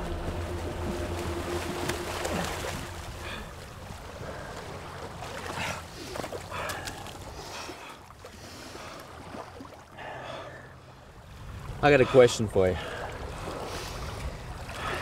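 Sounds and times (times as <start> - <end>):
surf rushing: 0.0 - 5.9
wind: 0.0 - 15.0
man breathing heavily: 3.1 - 4.8.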